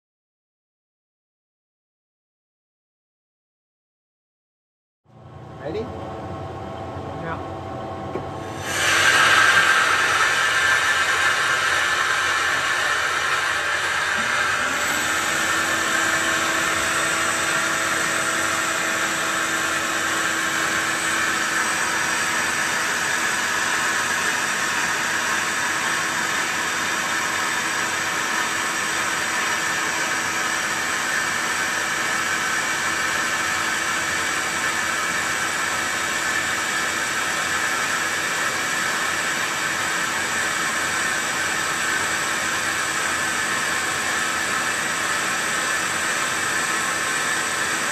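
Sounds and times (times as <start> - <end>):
steady low machine tone: 5.1 - 8.5
lathe cutting hiss: 8.4 - 47.9.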